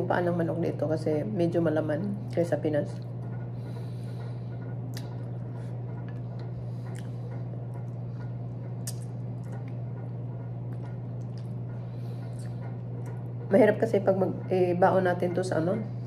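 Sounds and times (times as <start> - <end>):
steady low hum: 0.0 - 16.0
mouth clicks and smacks: 8.8 - 9.8
wet chewing and sucking: 8.8 - 9.9.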